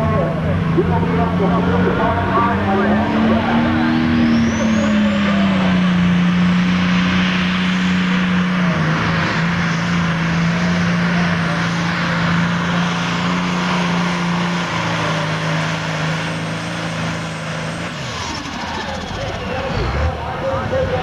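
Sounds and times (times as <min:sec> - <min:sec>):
tractor diesel engine under load: 0:00.0 - 0:21.0.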